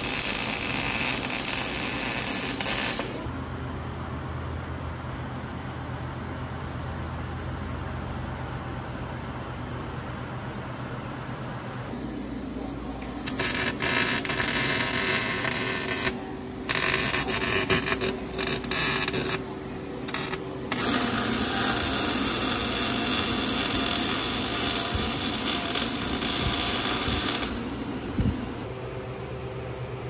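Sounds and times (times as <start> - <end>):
welding arc crackling: 0.0 - 3.3, 13.0 - 28.7.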